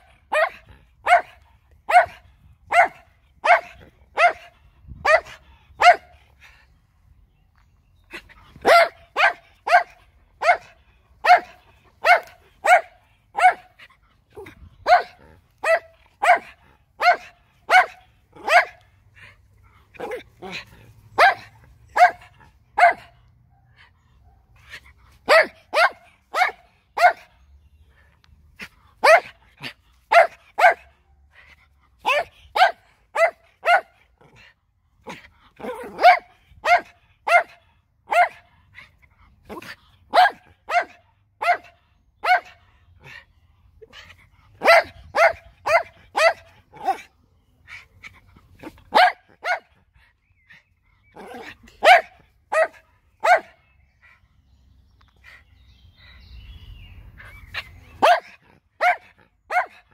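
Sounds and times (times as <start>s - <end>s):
dog barking loudly: 0.0s - 6.3s, 8.2s - 19.0s, 19.9s - 27.4s, 28.6s - 31.2s, 32.0s - 34.4s, 35.0s - 38.5s, 39.4s - 43.1s, 44.0s - 47.1s, 47.7s - 49.8s, 51.1s - 53.7s, 57.4s - 59.9s.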